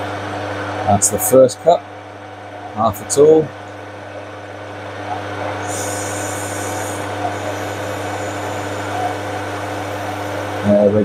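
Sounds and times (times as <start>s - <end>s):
lathe motor hum: 3.5s - 11.0s
hiss of lathe cutting: 5.6s - 10.8s.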